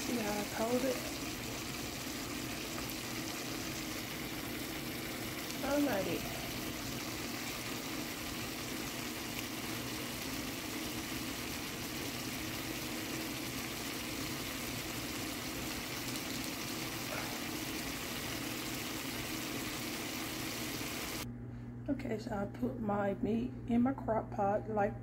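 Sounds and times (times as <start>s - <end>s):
vegetables simmering in skillet: 0.0s - 21.2s
steady low hum: 20.8s - 25.0s.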